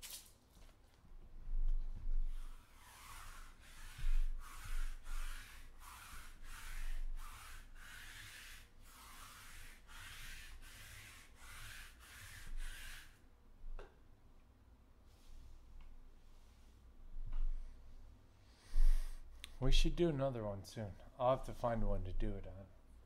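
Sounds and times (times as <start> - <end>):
lint roller rasping on fabric: 2.2 - 13.2.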